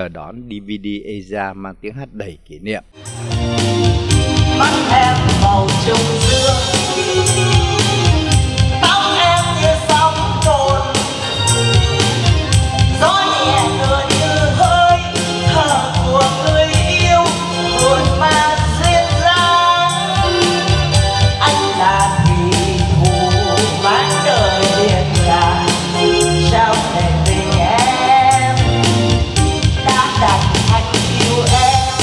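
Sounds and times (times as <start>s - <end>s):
amplified backing music with drums: 3.0s - 32.0s
woman singing into microphone: 4.5s - 8.0s, 8.7s - 11.5s, 12.8s - 29.0s, 29.7s - 32.0s.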